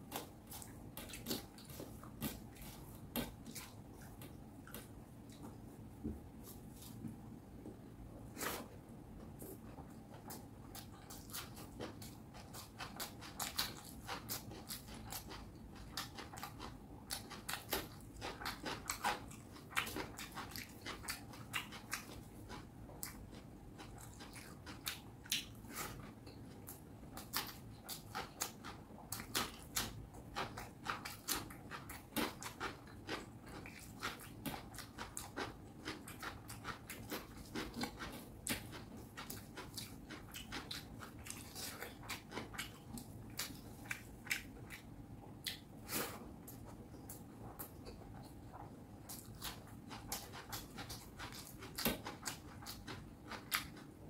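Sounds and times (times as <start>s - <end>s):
mouth chewing clicks and smacks: 9.9s - 54.0s.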